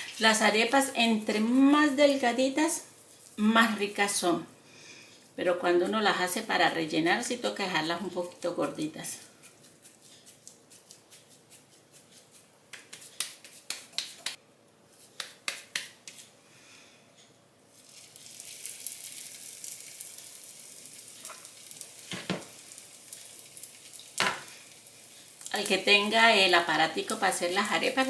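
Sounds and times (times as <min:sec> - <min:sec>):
oil sizzling in a frying pan: 0:00.0 - 0:04.4, 0:17.7 - 0:28.0
hands slapping dough: 0:09.4 - 0:16.3.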